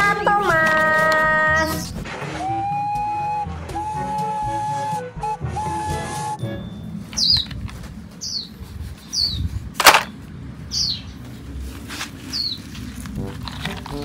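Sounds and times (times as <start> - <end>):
small bird chirping: 7.2 - 7.6, 8.2 - 9.5, 10.7 - 11.2, 12.3 - 12.7
plastic toys clacking: 9.8 - 10.1.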